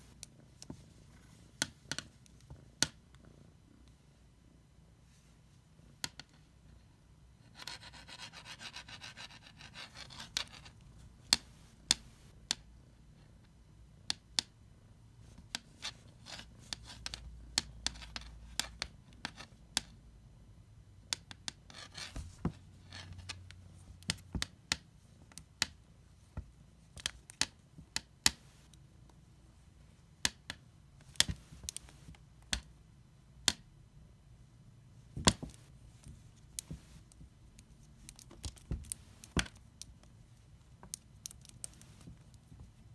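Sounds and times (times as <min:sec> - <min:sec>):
rubbing and scratching: 0:07.4 - 0:12.4, 0:15.2 - 0:19.6, 0:21.6 - 0:24.4, 0:35.1 - 0:42.9.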